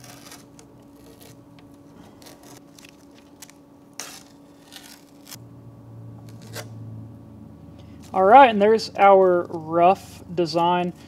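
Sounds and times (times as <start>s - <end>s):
tape peeling with rustling: 0.0s - 5.4s, 6.2s - 6.8s
steady low hum: 0.0s - 11.0s.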